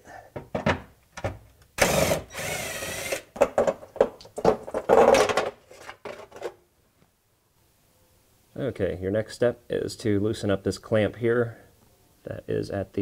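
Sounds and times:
cordless power tool spinning: 1.8 - 3.3.

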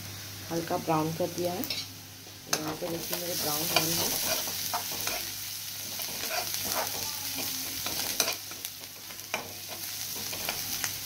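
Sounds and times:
onions sizzling in oil: 0.0 - 11.0
spatula scraping a pan: 3.0 - 10.8.

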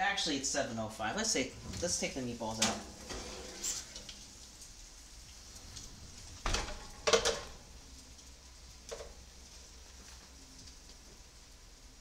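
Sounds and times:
faint steady hiss: 0.0 - 12.0
thump: 6.4 - 6.8.

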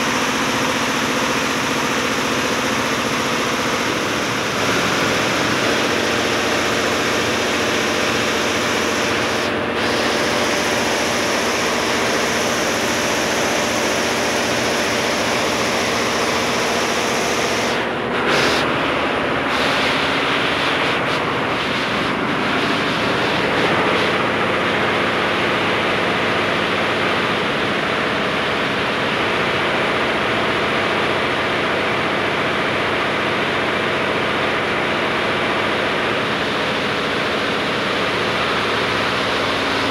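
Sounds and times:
embroidery machine stitching: 0.0 - 18.8.

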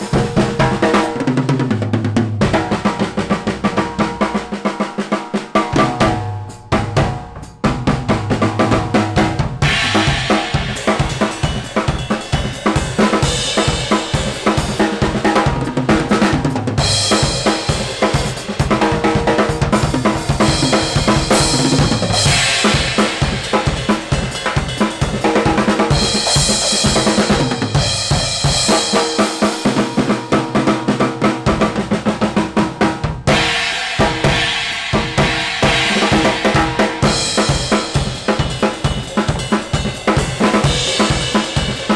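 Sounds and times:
fast acoustic drumming: 0.0 - 41.9
cymbal crashes: 9.6 - 14.8, 20.4 - 25.2, 33.3 - 39.9.

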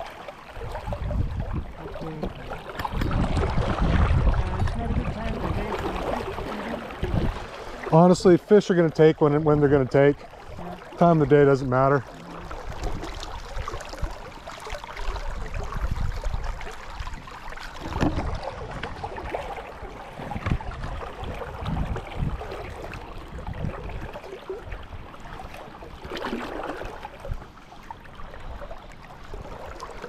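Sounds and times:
brook water running: 0.0 - 30.0
wind buffeting microphone: 0.6 - 8.3, 15.0 - 25.5.

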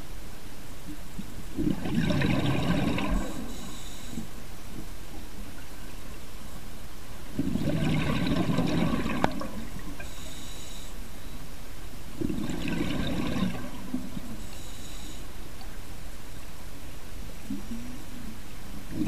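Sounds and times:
bubbling exhalation underwater: 1.6 - 3.4, 7.4 - 9.7, 12.2 - 14.2.

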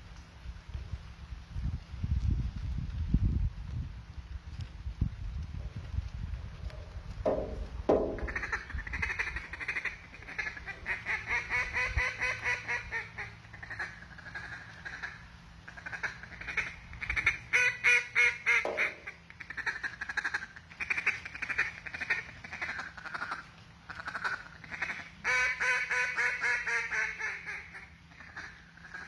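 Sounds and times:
duck call quacks: 8.1 - 29.0.

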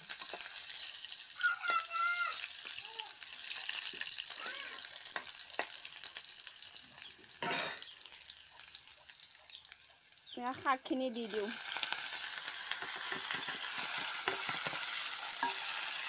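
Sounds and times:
onions sizzling in oil: 0.0 - 16.0
metal ladle stirring: 15.4 - 15.8.

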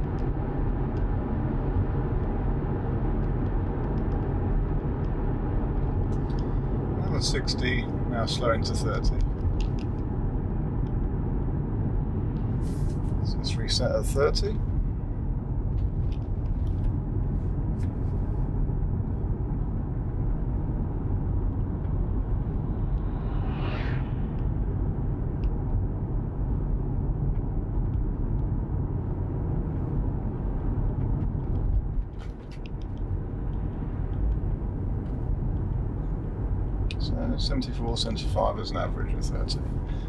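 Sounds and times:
brief whoosh: 22.7 - 24.8.

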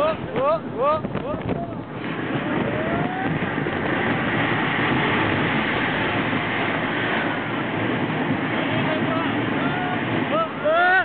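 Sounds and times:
wind rushing past: 0.0 - 11.0.

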